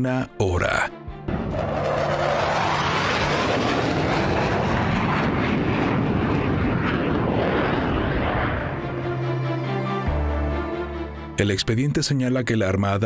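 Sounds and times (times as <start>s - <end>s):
jet engine roar: 1.3s - 9.8s.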